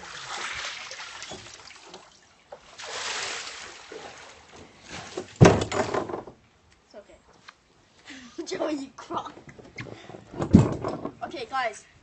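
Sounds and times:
water splashing into pool: 0:00.0 - 0:06.0.

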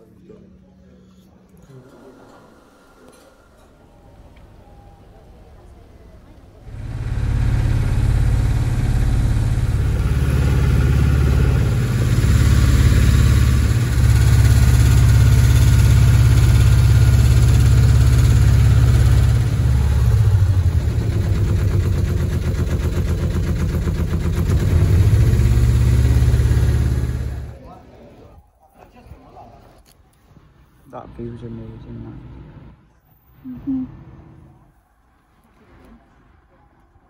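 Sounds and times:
motorboat engine drone: 0:06.7 - 0:27.6.

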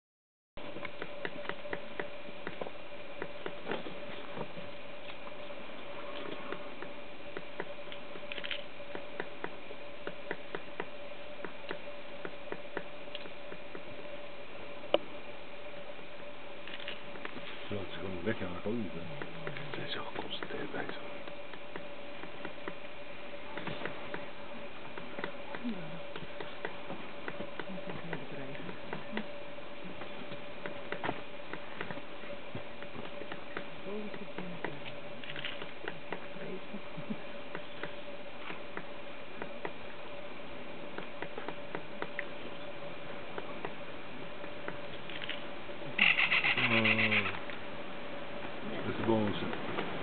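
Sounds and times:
woodpecker tapping on tree: 0:06.5 - 0:13.9.

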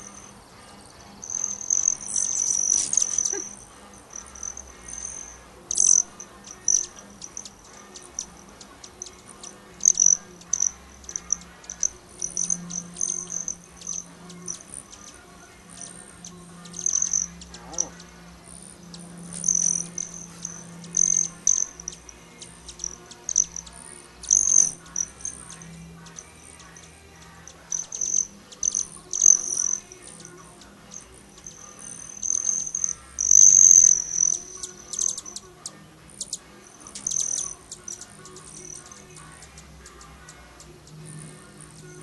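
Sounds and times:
hummingbirds chattering: 0:00.0 - 0:42.0.

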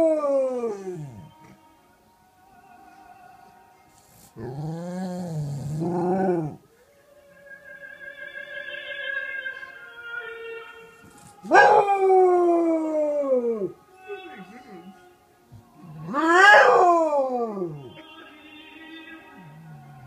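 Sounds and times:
opera singing on television: 0:00.0 - 0:20.0
dog howling: 0:11.3 - 0:13.8, 0:16.0 - 0:17.9.

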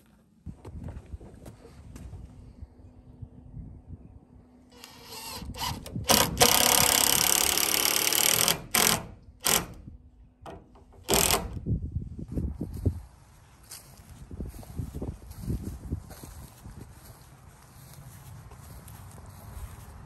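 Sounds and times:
cordless drill driving a screw: 0:04.7 - 0:09.8, 0:11.0 - 0:11.6.

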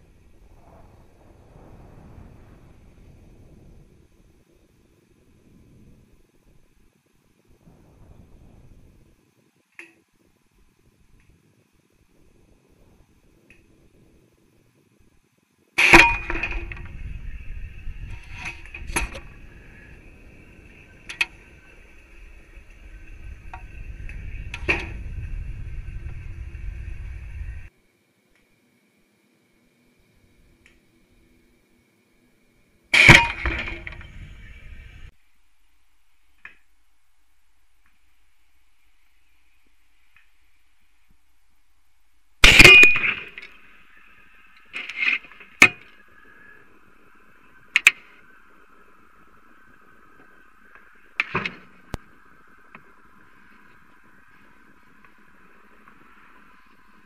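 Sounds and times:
low rumble: 0:00.0 - 0:09.2, 0:16.2 - 0:27.7, 0:33.3 - 0:35.1
faint steady hum: 0:00.0 - 0:57.0
high electronic whine: 0:15.8 - 0:27.7, 0:32.9 - 0:35.1.

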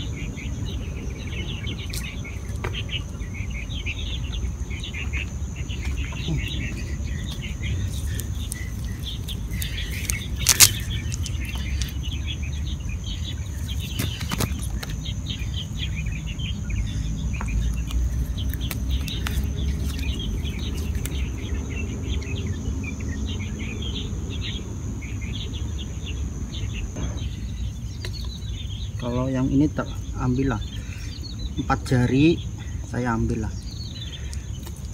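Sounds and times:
high insect drone: 0:00.0 - 0:34.9
small birds chirping: 0:00.0 - 0:34.9
net clicking and rustling: 0:08.0 - 0:11.9.

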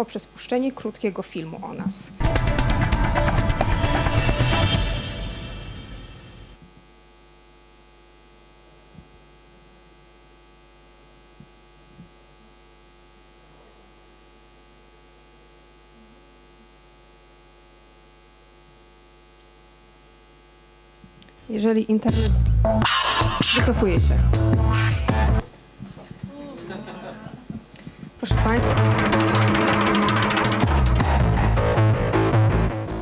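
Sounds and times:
electrical mains hum: 0:00.0 - 0:33.0
music: 0:02.2 - 0:06.6, 0:22.0 - 0:25.5, 0:28.2 - 0:33.0.

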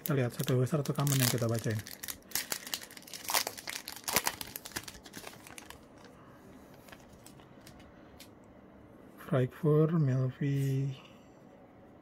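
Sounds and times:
foil wrapper tearing and crinkling: 0:00.0 - 0:06.1.

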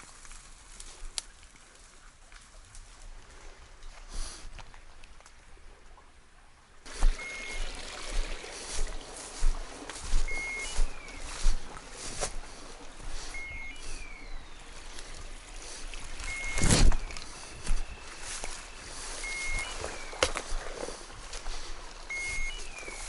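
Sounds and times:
rustling through brush: 0:00.0 - 0:05.0, 0:06.8 - 0:23.0
footsteps in dry grass: 0:00.0 - 0:05.3, 0:06.8 - 0:23.0
electronic collar beep and chirp: 0:07.2 - 0:07.6, 0:10.2 - 0:11.2, 0:13.3 - 0:14.6, 0:16.2 - 0:17.1, 0:19.2 - 0:20.2, 0:22.1 - 0:23.0.

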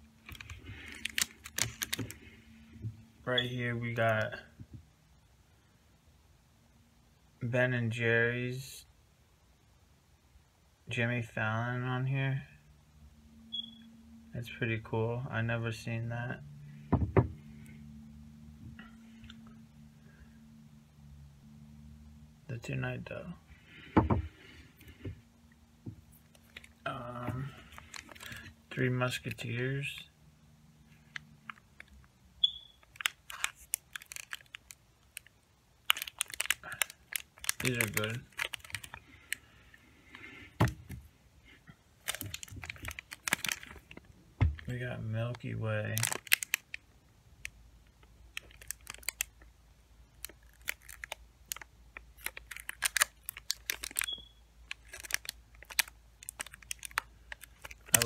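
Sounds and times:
plastic wrapper crinkling: 0:00.2 - 0:02.4, 0:26.1 - 0:29.4, 0:32.8 - 0:39.5, 0:42.0 - 0:58.0.

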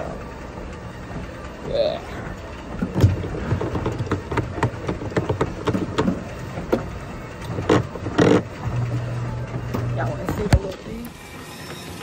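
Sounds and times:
steady low hum: 0:00.0 - 0:12.0
knocks and taps: 0:03.0 - 0:06.8.

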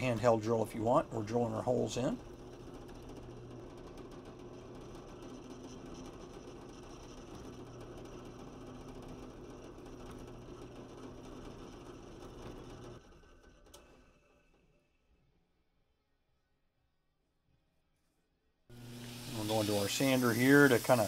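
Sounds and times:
drill press drilling plastic sheet: 0:01.0 - 0:14.5, 0:18.7 - 0:21.0.

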